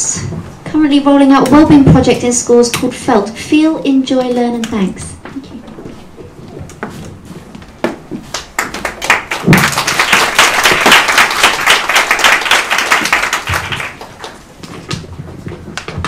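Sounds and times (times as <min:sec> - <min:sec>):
audience applauding: 0:08.3 - 0:14.4.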